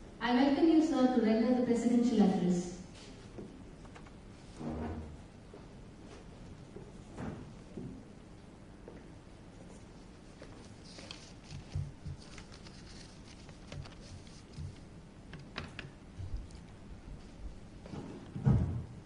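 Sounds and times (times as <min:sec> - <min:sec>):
low hum of a hall: 0:00.0 - 0:19.0
rustling: 0:09.7 - 0:14.9.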